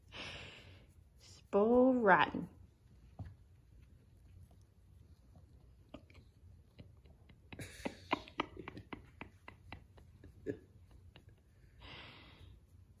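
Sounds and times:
breathy laughter: 0:06.0 - 0:11.9.

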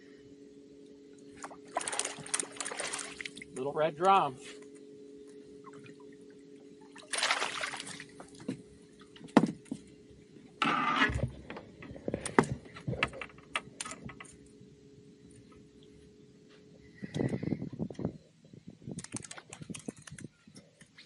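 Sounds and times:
fish splashing at water surface: 0:01.4 - 0:03.5, 0:07.0 - 0:08.3.

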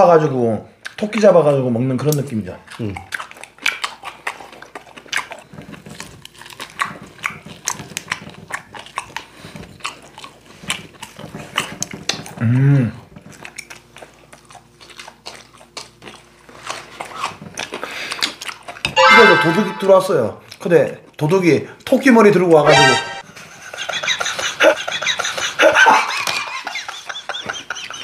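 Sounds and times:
chewing and tearing meat: 0:00.2 - 0:19.0, 0:20.4 - 0:22.0.

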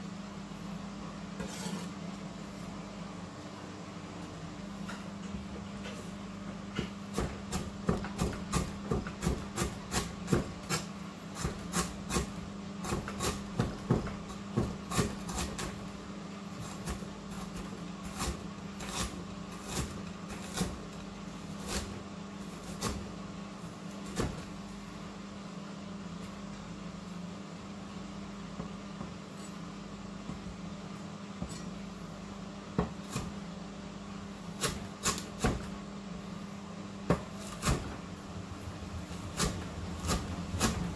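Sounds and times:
knife chopping on cutting board: 0:06.7 - 0:15.8, 0:16.6 - 0:20.9, 0:21.6 - 0:23.1, 0:24.0 - 0:24.5, 0:32.7 - 0:33.4, 0:34.6 - 0:35.8, 0:37.1 - 0:38.0, 0:39.1 - 0:40.9.

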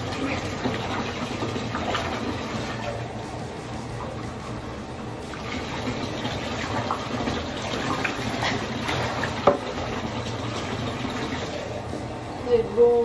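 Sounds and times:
bathwater splashing and pouring: 0:00.0 - 0:03.2, 0:05.2 - 0:11.8.

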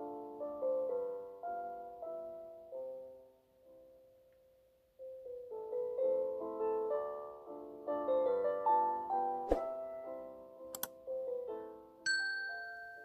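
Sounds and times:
gentle piano music: 0:00.0 - 0:13.0
sharp clicks: 0:10.7 - 0:10.9.

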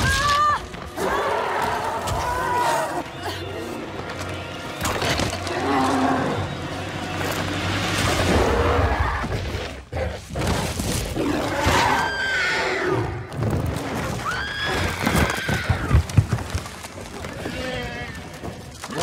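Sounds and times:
film score music: 0:00.0 - 0:14.2.

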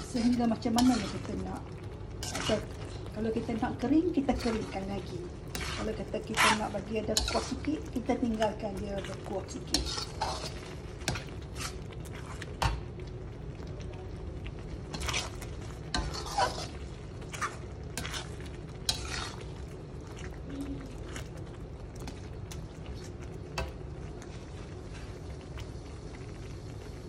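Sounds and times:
spatula scraping metal wok: 0:00.0 - 0:08.1, 0:09.0 - 0:12.5, 0:14.9 - 0:19.7
sauce sizzling: 0:00.0 - 0:27.0.

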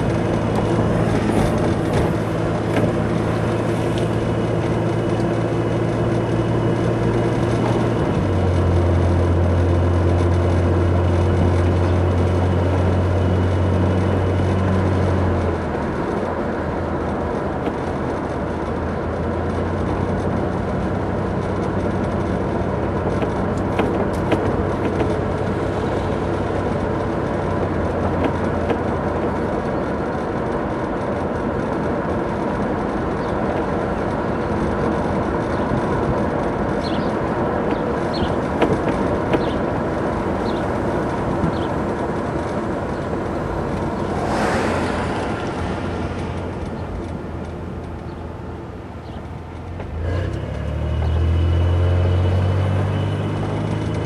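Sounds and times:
car engine drone: 0:00.0 - 0:54.0
road and tyre noise: 0:00.0 - 0:54.0
knocks from road bumps: 0:23.0 - 0:26.0, 0:36.8 - 0:39.7.

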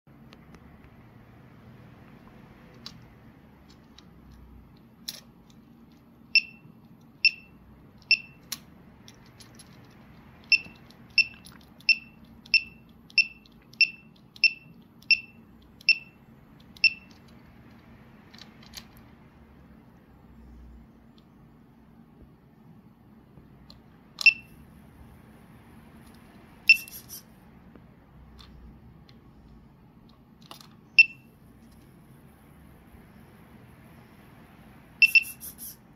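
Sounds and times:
short high electronic beeps: 0:26.7 - 0:27.2, 0:35.0 - 0:35.8.

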